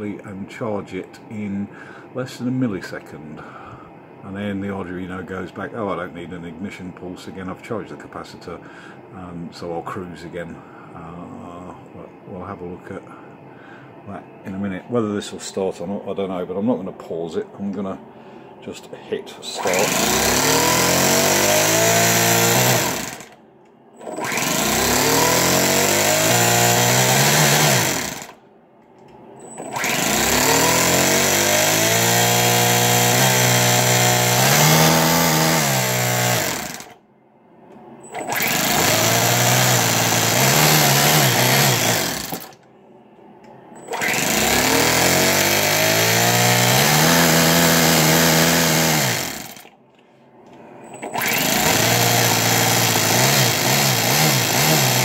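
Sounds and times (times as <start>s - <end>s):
electric starter cranking engine: 19.6s - 23.4s, 24.0s - 28.4s, 29.4s - 37.0s, 38.0s - 42.6s, 43.8s - 49.8s, 50.9s - 55.0s.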